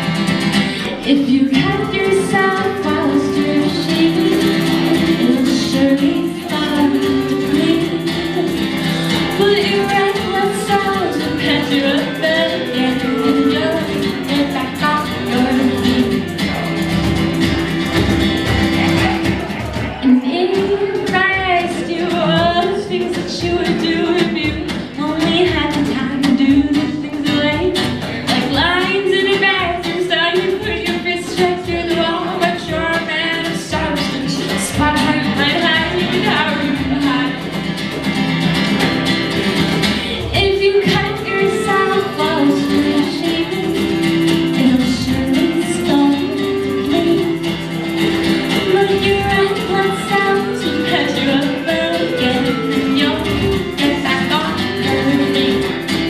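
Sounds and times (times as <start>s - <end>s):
strummed acoustic guitar: 0.0s - 56.0s
man and woman singing together: 0.7s - 16.4s, 48.6s - 55.8s.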